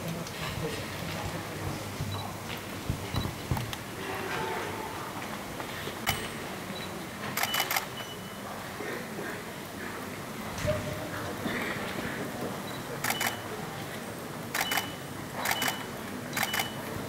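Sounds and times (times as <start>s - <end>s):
camera shutters clicking: 7.4s - 7.9s, 13.0s - 13.4s, 14.5s - 16.7s.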